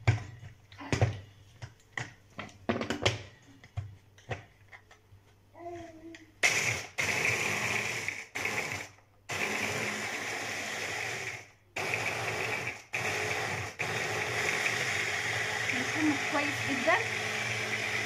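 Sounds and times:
electric food chopper grinding biscuits: 6.4 - 18.0.

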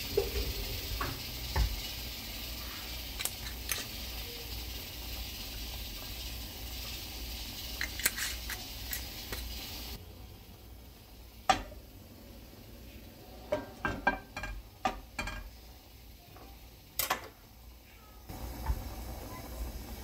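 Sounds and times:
frying pan knocking on stove grate: 11.5 - 11.8, 13.5 - 15.6.

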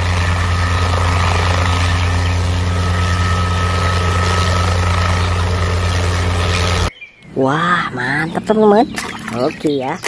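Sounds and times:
helicopter hovering: 0.0 - 10.0.

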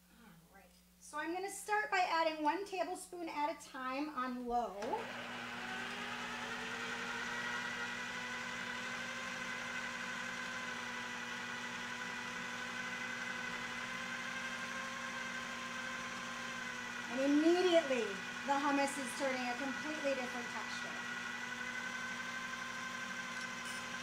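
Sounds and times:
food processor motor whirring: 4.8 - 24.0.

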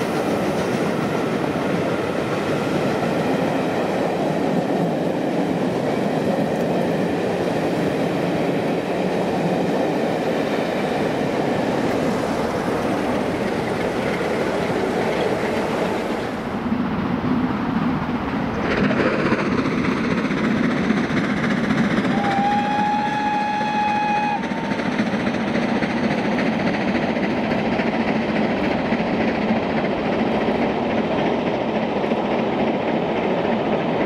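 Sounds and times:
train rumbling on rails: 0.0 - 34.0
steam whistle blast: 22.1 - 24.8.

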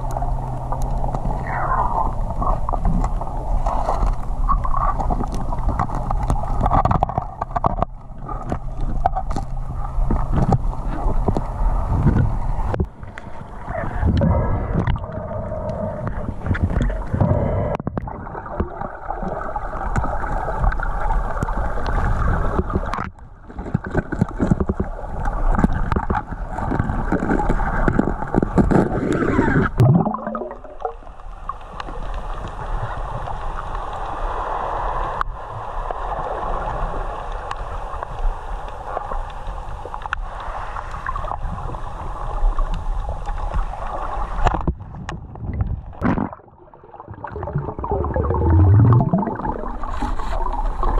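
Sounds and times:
muffled underwater gurgling: 0.0 - 31.1, 43.4 - 50.9
smooth water rush: 0.0 - 50.9.

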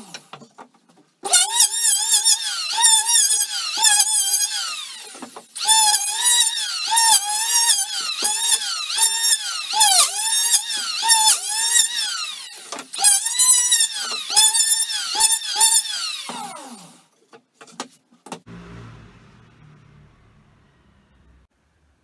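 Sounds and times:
electric hand planer whining: 1.3 - 16.8.

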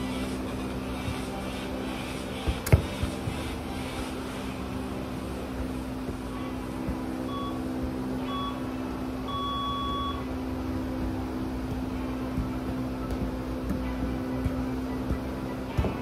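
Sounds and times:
steady low hum: 0.0 - 16.0
football taps: 2.4 - 3.7, 6.0 - 7.5, 10.9 - 16.0
electronic timer beeping: 7.2 - 10.3.

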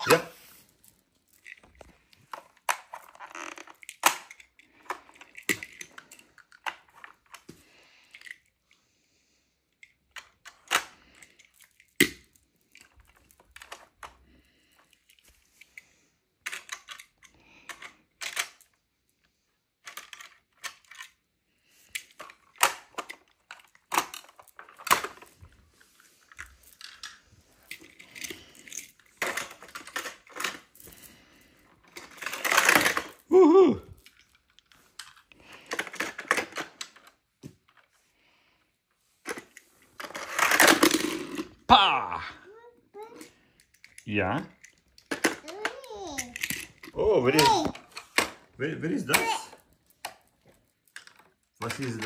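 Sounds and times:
plastic toys clattering: 0.0 - 8.8, 9.7 - 38.0, 39.2 - 41.7, 43.0 - 52.0.

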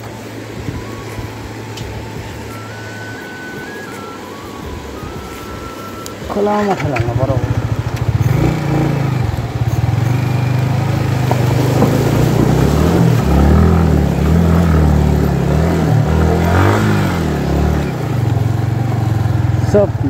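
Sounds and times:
vehicle engine revving: 6.6 - 20.0.

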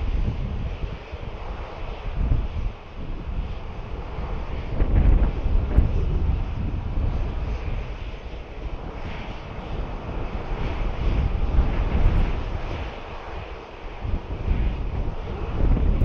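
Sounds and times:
jet engines hissing: 0.0 - 16.0
wind buffeting microphone: 0.0 - 16.0.

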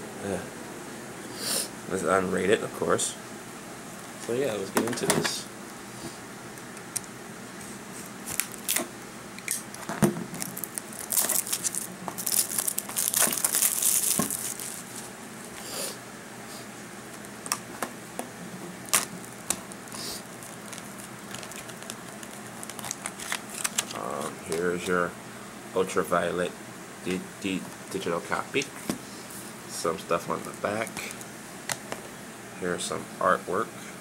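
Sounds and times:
plastic wrap tearing and crinkling: 8.2 - 8.9, 9.5 - 15.1, 18.8 - 24.8.

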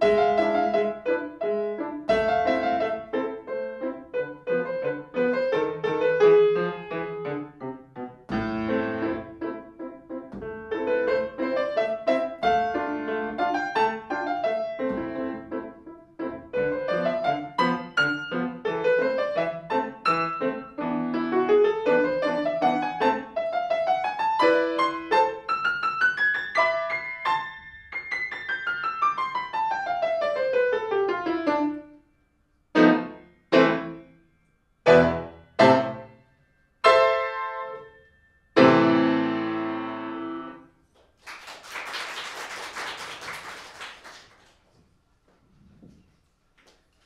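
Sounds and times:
grand piano playing: 0.0 - 32.0, 32.7 - 40.7
audience applause: 41.0 - 44.7.

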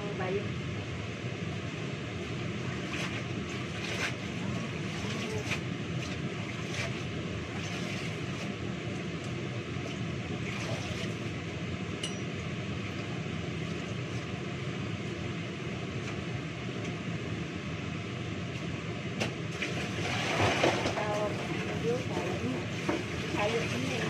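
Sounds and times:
light clinks: 12.0 - 12.4.

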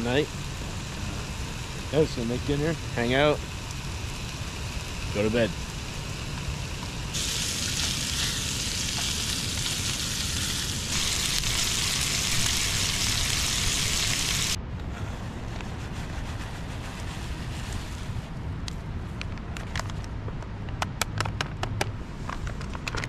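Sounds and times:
sausage sizzling in a pan: 0.0 - 14.6.

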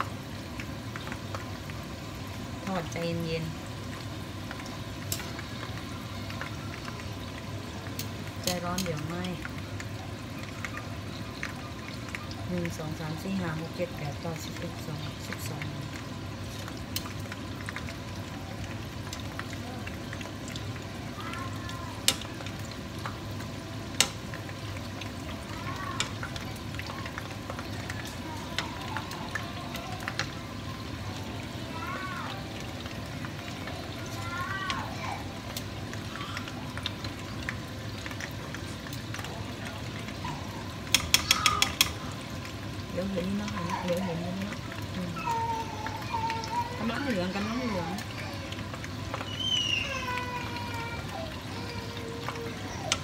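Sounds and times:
deep-frying sizzle in hot oil: 0.0 - 53.0
metal tongs clicking on pan: 8.0 - 9.5, 23.9 - 24.2, 40.8 - 42.0.

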